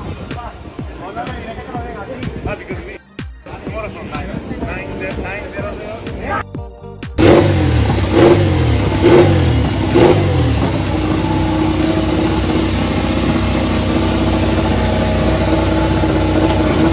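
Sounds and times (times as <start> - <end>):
motorcycle engine idling: 7.2 - 16.9.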